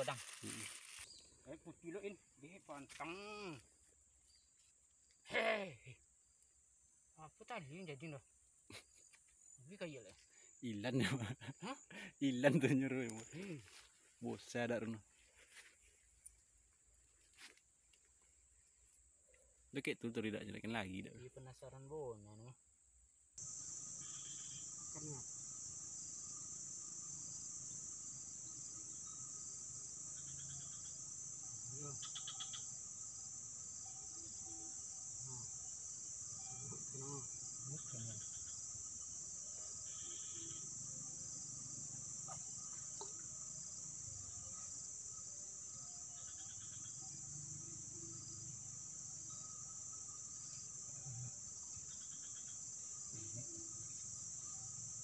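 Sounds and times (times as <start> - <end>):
insects chorus: 0.0 - 55.0
rapid insect chirping: 0.0 - 55.0.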